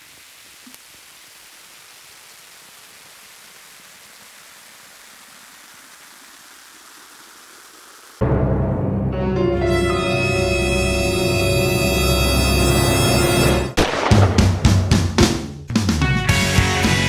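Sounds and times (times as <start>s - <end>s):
static hiss: 0.0s - 8.2s
loud music: 8.2s - 17.0s.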